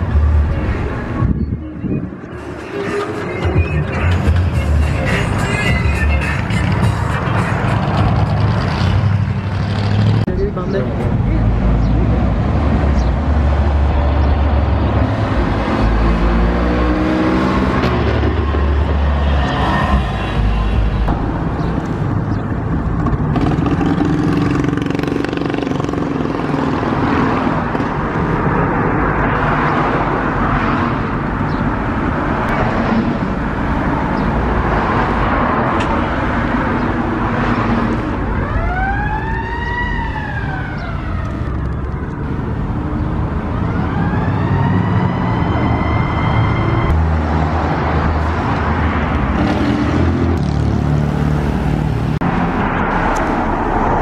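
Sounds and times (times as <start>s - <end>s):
car engines passing: 0.0s - 54.0s
siren wailing: 38.2s - 42.2s, 43.6s - 47.0s.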